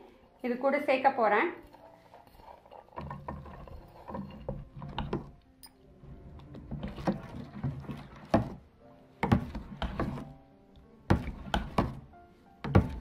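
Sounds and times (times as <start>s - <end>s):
wet batter slopping: 6.4s - 10.3s.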